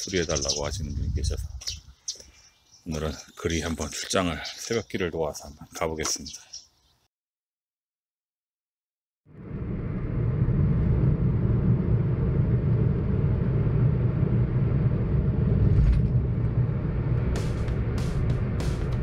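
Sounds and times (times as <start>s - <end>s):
car road and engine noise: 9.5s - 19.0s.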